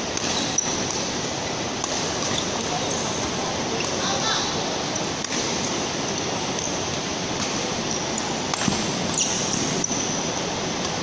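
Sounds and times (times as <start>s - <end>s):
racket striking shuttlecock: 1.8s - 4.0s, 5.2s - 5.8s, 7.4s - 9.9s.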